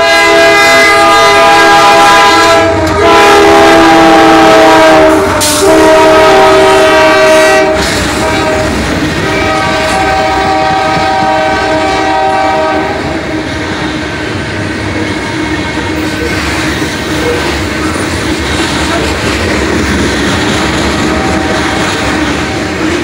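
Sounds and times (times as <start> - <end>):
locomotive air horn blasts: 0.0 - 13.2
freight cars clattering on rails: 13.1 - 23.0.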